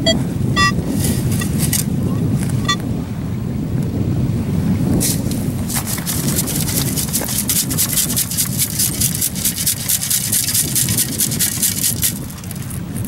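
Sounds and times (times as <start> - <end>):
wind rumble on microphone: 0.0 - 13.0
sand rattling through metal scoop: 5.0 - 12.6.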